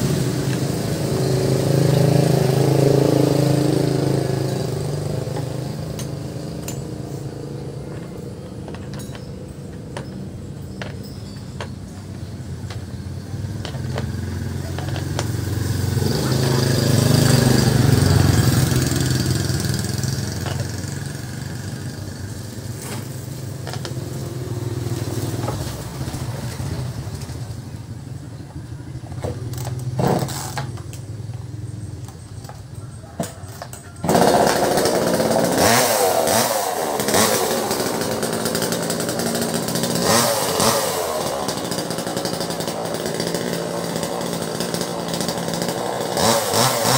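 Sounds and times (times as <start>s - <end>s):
two-stroke chainsaw revving: 0.0s - 8.1s, 12.2s - 27.8s, 29.2s - 46.9s
motorcycle engine passing: 0.0s - 8.5s, 12.9s - 46.9s.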